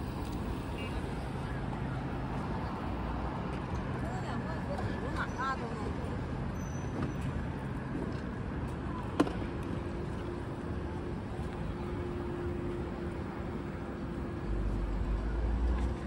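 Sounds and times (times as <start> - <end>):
traffic road noise: 0.0 - 16.0.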